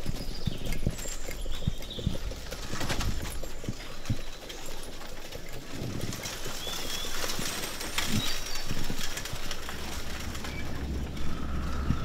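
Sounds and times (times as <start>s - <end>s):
bird chirp: 0.0s - 2.8s, 6.4s - 12.0s
hoof clops: 0.0s - 12.0s
carriage rumbling: 0.7s - 12.0s.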